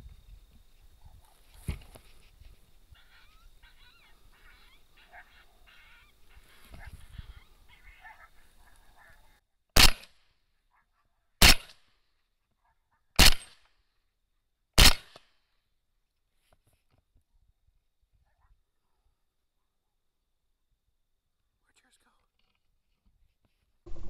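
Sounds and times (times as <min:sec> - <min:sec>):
faint broken calls: 0:02.9 - 0:09.4
rifle shots echoing: 0:09.8 - 0:10.1, 0:11.4 - 0:11.8, 0:13.2 - 0:13.6.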